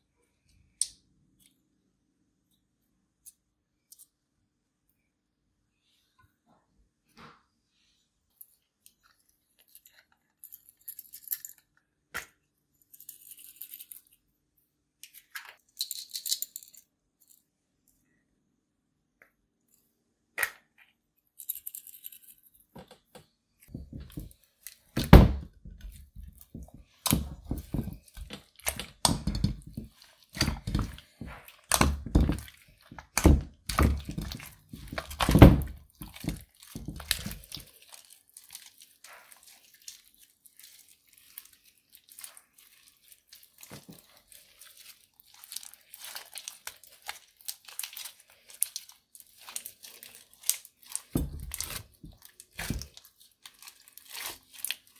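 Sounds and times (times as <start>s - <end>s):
slime squishing and squelching: 23.7s - 54.9s
slime crackling as stretched: 25.9s - 54.9s.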